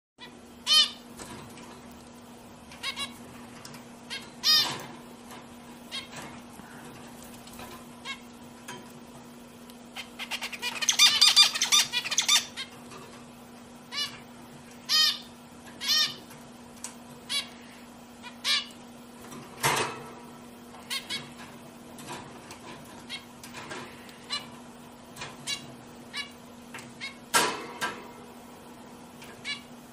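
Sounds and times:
steady low hum: 0.2 - 29.9
finches giving nasal calls: 10.0 - 12.7, 14.9 - 16.2.

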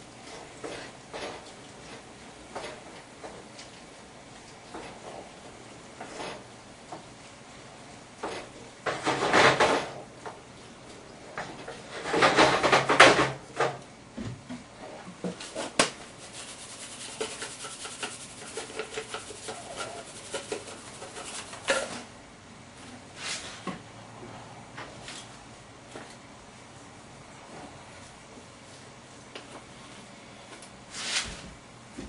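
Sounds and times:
spatula scraping a frying pan: 0.3 - 3.1, 4.7 - 5.3, 6.0 - 6.5, 8.2 - 9.9, 15.4 - 22.1.

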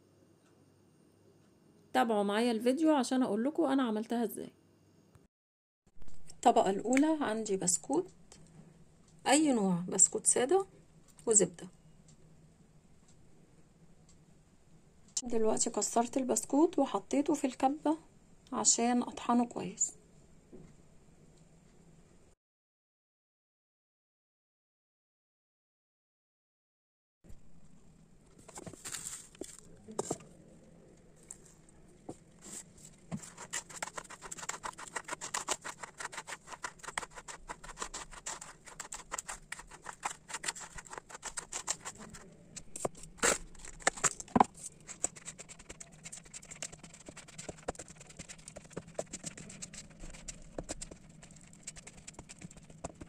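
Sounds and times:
spatula scraping in plastic bowl: 32.4 - 53.0.

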